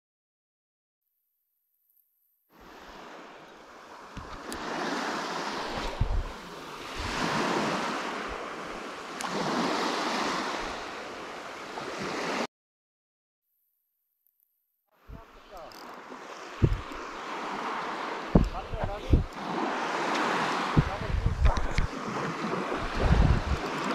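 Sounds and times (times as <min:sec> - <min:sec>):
sea waves washing ashore: 0:02.5 - 0:12.5, 0:15.0 - 0:23.9
low thump: 0:16.6 - 0:17.0, 0:18.3 - 0:19.3.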